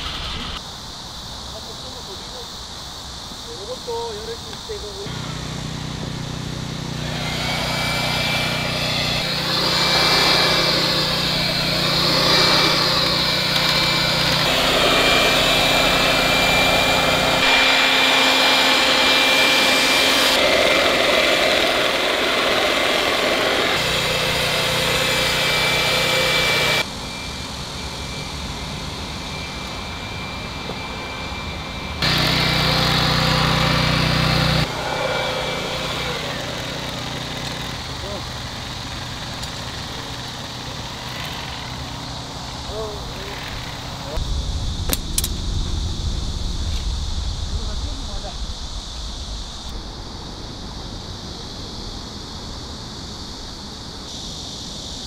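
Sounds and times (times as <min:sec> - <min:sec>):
portable generator running: 0:04.8 - 0:49.7
electric sewing machine whining: 0:05.1 - 0:44.2.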